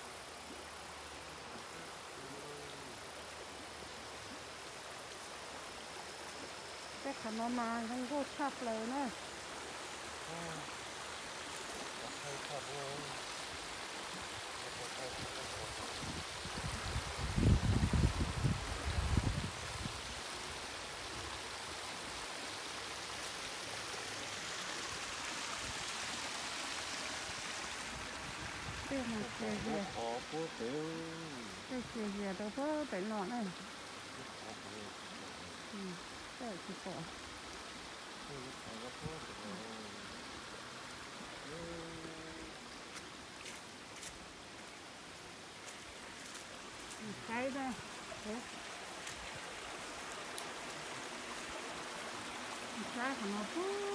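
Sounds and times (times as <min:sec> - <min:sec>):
creek water rushing over rocks: 0:00.0 - 0:53.9
person's voice: 0:28.9 - 0:33.6, 0:34.2 - 0:37.1, 0:52.8 - 0:53.9
faint ticks: 0:50.1 - 0:50.6.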